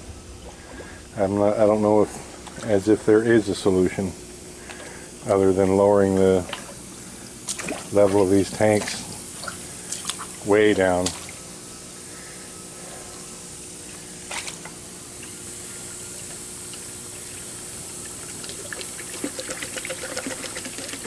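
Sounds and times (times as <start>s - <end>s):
low steady hum: 0.0s - 21.0s
water running in tanks: 0.0s - 21.0s
small splashes and drips: 6.3s - 11.4s, 14.3s - 21.0s
water splash: 7.5s - 8.0s.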